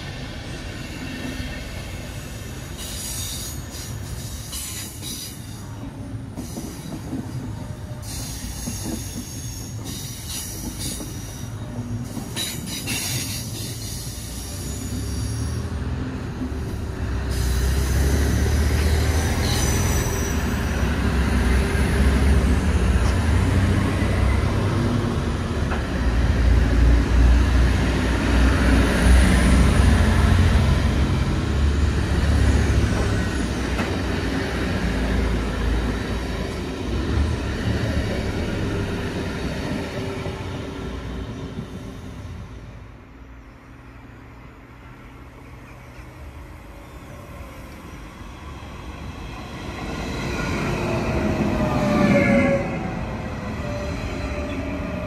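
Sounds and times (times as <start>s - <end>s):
diesel train rumble: 0.0s - 55.0s
train wheels squealing: 2.0s - 5.7s, 6.4s - 15.7s, 17.3s - 20.9s, 51.6s - 55.0s.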